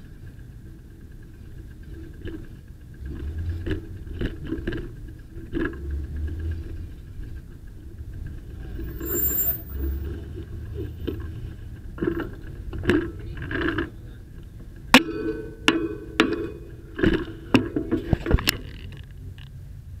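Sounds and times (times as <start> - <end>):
bicycle scraping and rattling: 8.8 - 10.2.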